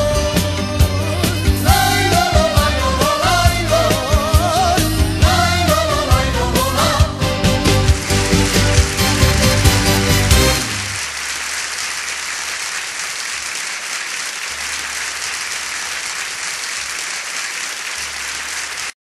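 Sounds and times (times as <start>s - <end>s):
audience applauding: 7.4s - 19.0s.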